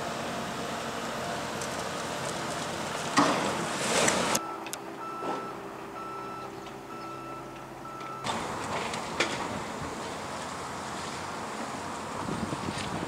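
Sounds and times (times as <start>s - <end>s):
reversing alarm beeps: 4.3s - 8.3s.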